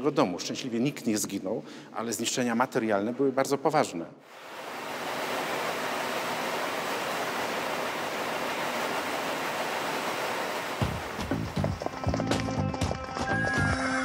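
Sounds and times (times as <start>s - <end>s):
steady rushing noise: 4.3s - 12.1s
rapid horse hoofbeats: 10.8s - 13.4s.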